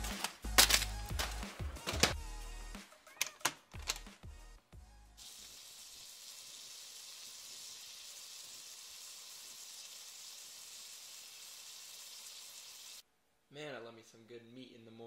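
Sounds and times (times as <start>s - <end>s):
meat sizzling in frying pan: 5.2s - 13.0s.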